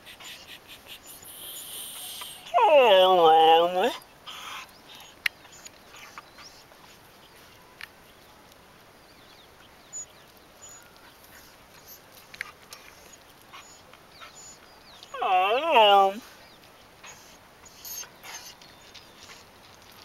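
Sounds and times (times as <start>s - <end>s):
claws clicking on asphalt: 10.2s - 15.1s, 17.9s - 20.0s.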